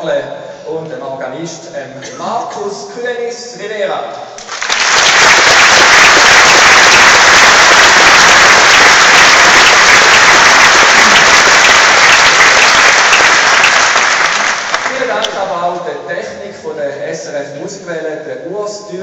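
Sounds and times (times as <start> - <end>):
audience applauding: 4.4 - 15.4.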